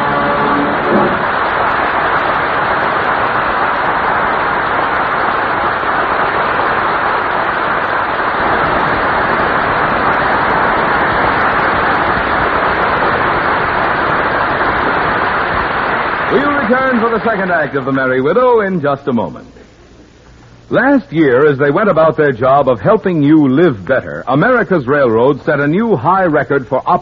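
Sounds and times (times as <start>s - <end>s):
audience applauding: 0.0s - 4.2s.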